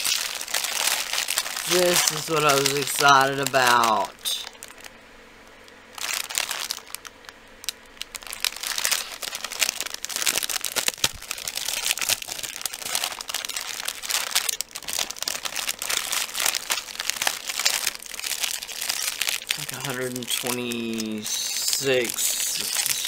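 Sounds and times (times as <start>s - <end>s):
plastic bag crinkling: 0.0s - 5.0s, 5.6s - 23.0s.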